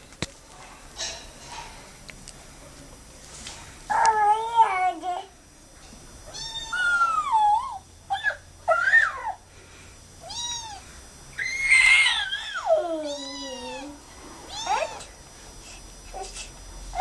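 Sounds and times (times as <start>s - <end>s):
kitten meowing: 6.3s - 7.4s, 10.2s - 10.8s, 11.4s - 15.1s.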